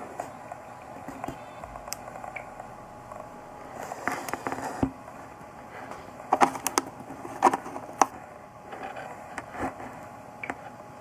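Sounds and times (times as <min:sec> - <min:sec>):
low steady hiss: 0:00.0 - 0:07.2.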